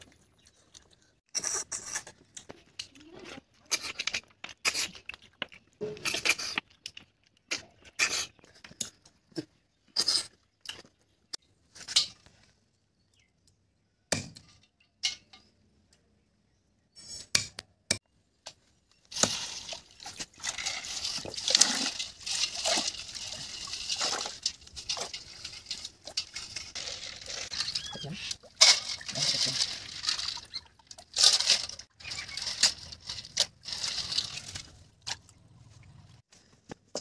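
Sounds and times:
water sloshing in bowl: 19.2 - 31.2.

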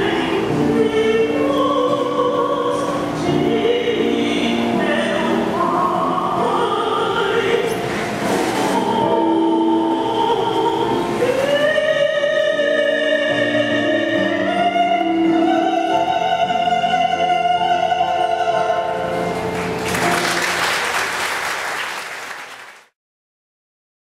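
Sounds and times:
keyboard accompaniment: 0.0 - 22.0
applause: 19.3 - 23.0.

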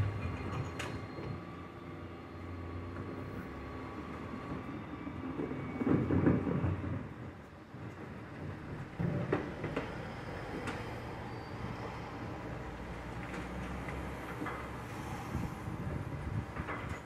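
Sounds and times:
loud engine rumble: 0.0 - 4.0
lorry engine hum: 0.0 - 4.8.

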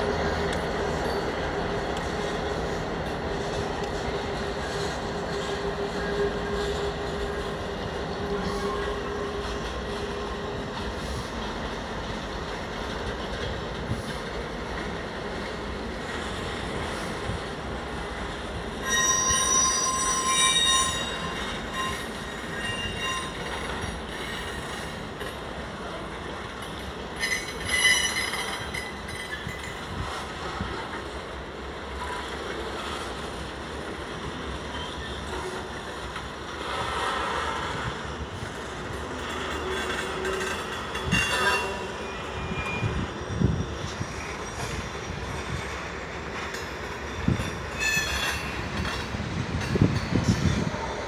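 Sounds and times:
train wheels rumbling on rails: 0.0 - 51.0
high-pitched wheel squeal: 18.8 - 23.8, 39.6 - 44.7.

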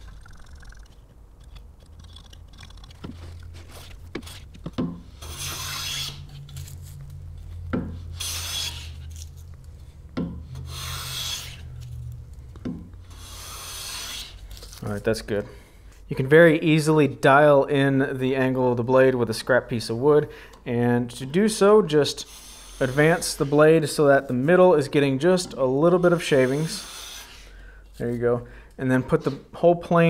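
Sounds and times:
hand plane shaving wood: 2.0 - 6.3, 8.1 - 9.2, 10.6 - 11.8, 13.1 - 14.4, 22.2 - 23.7, 26.0 - 27.4
sharp knocks of handling tool: 10.2 - 10.4.

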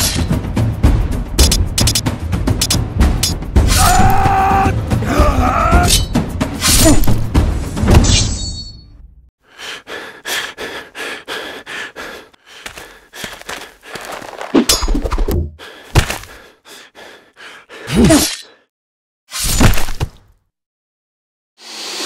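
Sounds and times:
gasp-like cries: 3.8 - 5.9.

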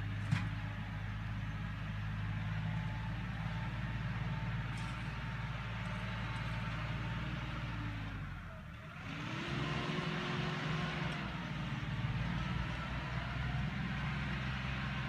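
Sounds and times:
tractor diesel engine under load: 0.0 - 15.0.

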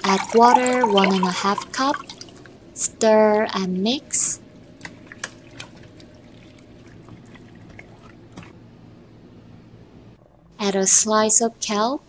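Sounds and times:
wet sloshing and squelching: 0.0 - 2.8, 4.4 - 8.6.

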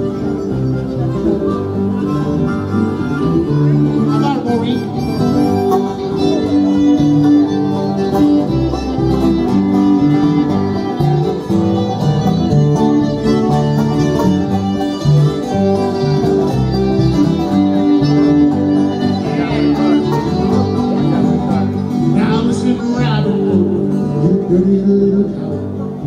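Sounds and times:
bluegrass banjo and guitar music: 0.0 - 26.0.

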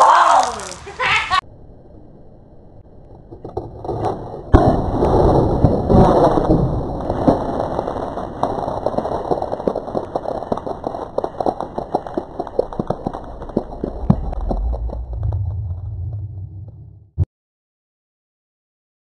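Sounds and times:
water drops pattering down: 0.0 - 1.0.

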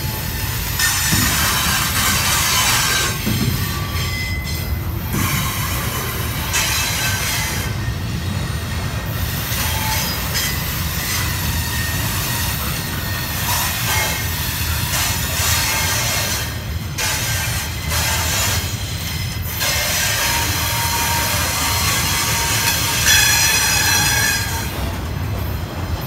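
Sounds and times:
train wheels rumbling on rail: 0.0 - 26.0
thin wheel squeals: 17.2 - 24.8.

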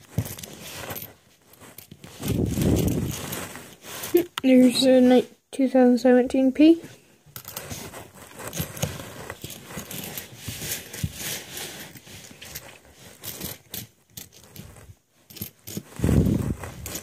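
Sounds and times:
coins scraping on tabletop: 0.0 - 5.0, 7.4 - 17.0
coins clinking: 7.4 - 15.9.

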